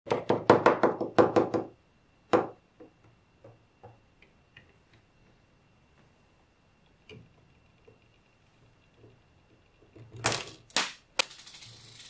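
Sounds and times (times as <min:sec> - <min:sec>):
magnetic balls clicking together: 0:09.6 - 0:12.0.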